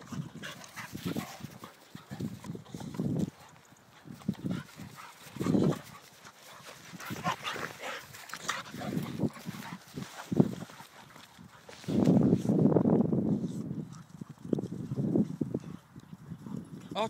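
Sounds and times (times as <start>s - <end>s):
dogs scuffling: 0.1s - 12.4s
dogs growling: 4.0s - 10.5s.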